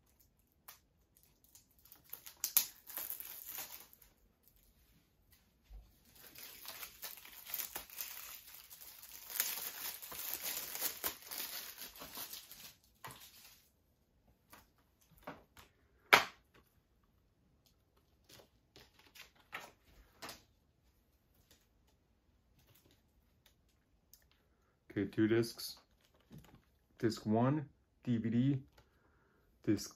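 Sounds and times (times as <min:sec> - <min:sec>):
plastic wrap crackling: 0:00.0 - 0:04.7, 0:06.0 - 0:13.8.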